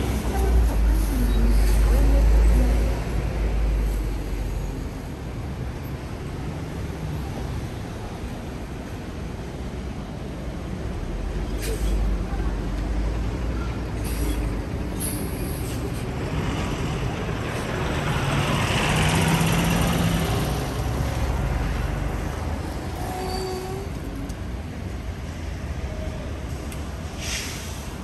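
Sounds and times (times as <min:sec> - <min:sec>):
vehicle passing on wet street: 0:16.0 - 0:23.0.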